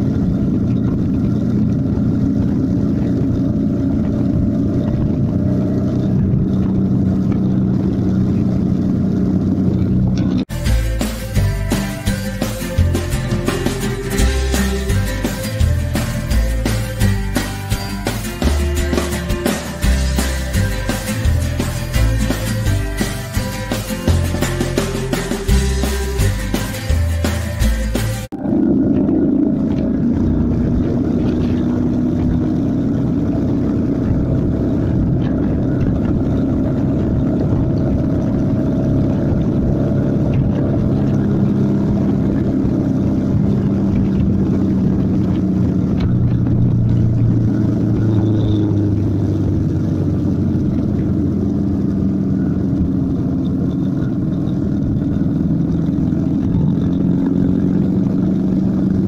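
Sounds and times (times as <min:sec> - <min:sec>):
motorcycle engine running: 0:00.0 - 0:59.0
wind rush: 0:28.3 - 0:59.0.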